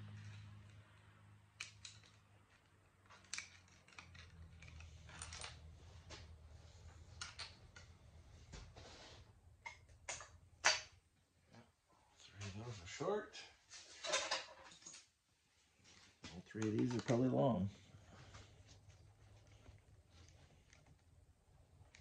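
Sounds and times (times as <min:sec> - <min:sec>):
tool and bolts clinking: 0:00.0 - 0:06.3, 0:14.0 - 0:15.1.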